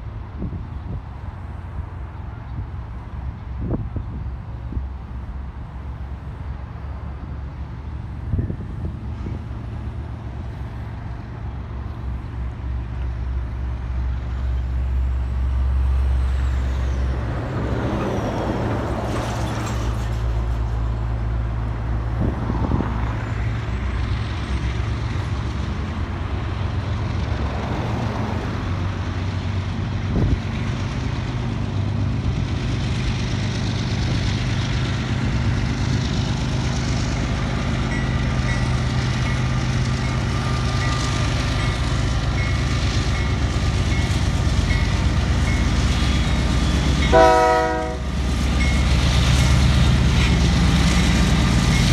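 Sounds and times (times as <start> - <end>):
diesel locomotive engine rumble: 0.0 - 51.9.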